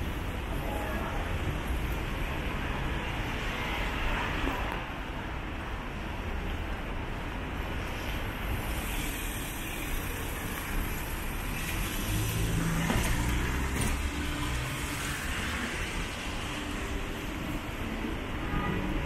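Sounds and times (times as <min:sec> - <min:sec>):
cars passing: 0:07.4 - 0:19.0.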